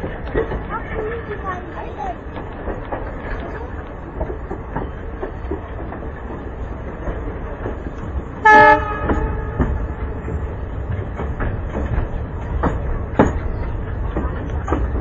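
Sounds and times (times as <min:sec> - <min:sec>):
train wheels clickety-clack: 0:00.0 - 0:15.0
locomotive horn blast: 0:08.4 - 0:10.0.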